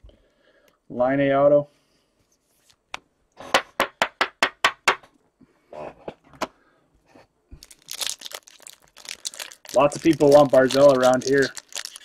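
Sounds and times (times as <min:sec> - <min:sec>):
foil pack crinkling: 0:07.6 - 0:12.0.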